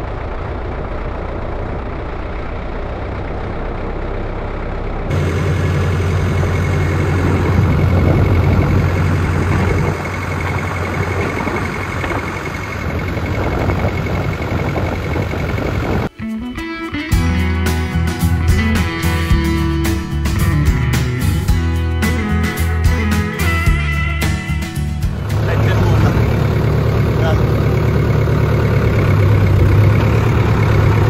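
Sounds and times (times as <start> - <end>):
thin steady whine: 0.0 - 16.1
tractor diesel engine running: 0.0 - 31.0.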